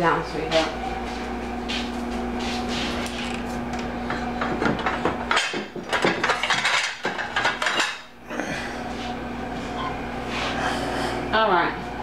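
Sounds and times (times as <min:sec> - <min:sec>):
cupboard and dishes clicking: 0:04.4 - 0:08.0.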